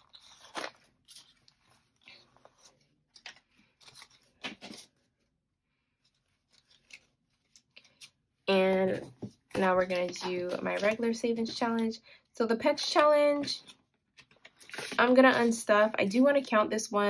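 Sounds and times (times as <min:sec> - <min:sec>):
paper rustling and crinkling: 0:00.0 - 0:05.2, 0:05.9 - 0:08.2, 0:08.9 - 0:11.2, 0:12.9 - 0:15.6.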